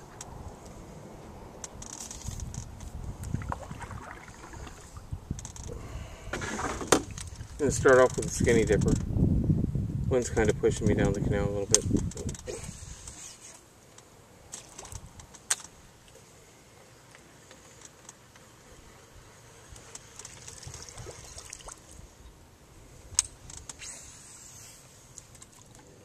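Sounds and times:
faint water lapping: 3.3 - 5.1, 19.8 - 22.2.

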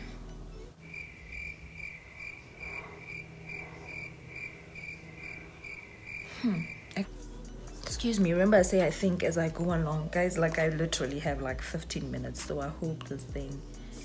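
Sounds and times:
cricket chirping: 0.8 - 7.0
person humming: 6.3 - 7.1.

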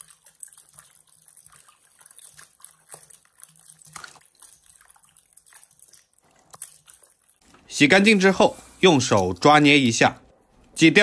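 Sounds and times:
small splashes: 0.0 - 7.9
water swishing and dripping: 0.0 - 10.8.

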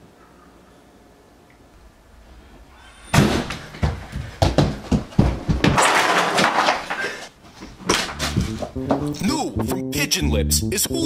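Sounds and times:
loud bangs and thumps: 3.0 - 6.9, 7.8 - 9.2.

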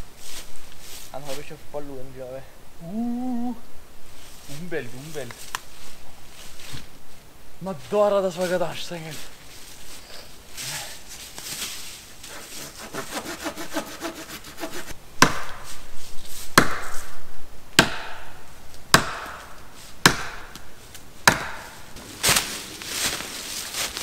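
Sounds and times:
quick rasping: 12.2 - 15.0
axe blows chopping wood: 15.2 - 15.7, 16.6 - 17.1, 17.8 - 18.3, 18.9 - 20.6, 21.2 - 21.8.

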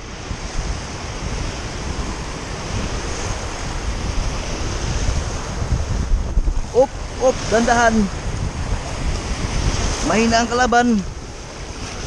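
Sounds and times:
surf breaking on rocky shore: 0.0 - 12.0
wind rumbling on microphone: 0.0 - 12.0.

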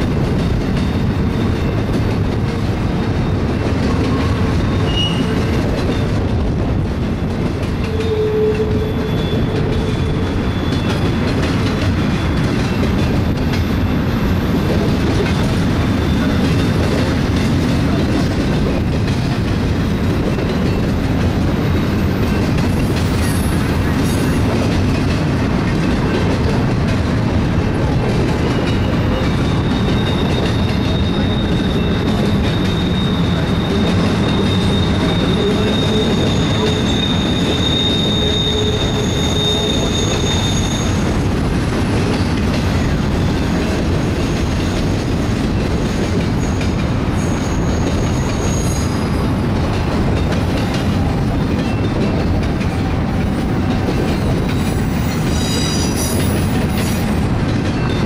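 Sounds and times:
freight train wheels rumbling: 0.0 - 58.0
high-pitched wheel squeal: 3.9 - 6.1, 7.9 - 11.2, 28.7 - 41.1, 46.4 - 49.2, 54.2 - 57.1.

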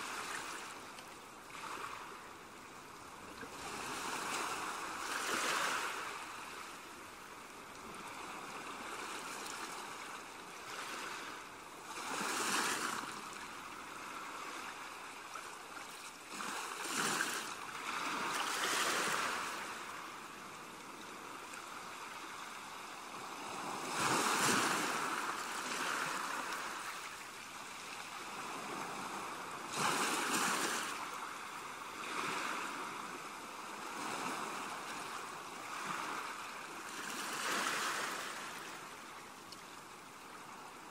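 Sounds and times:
ocean waves washing in: 16.1 - 39.4.

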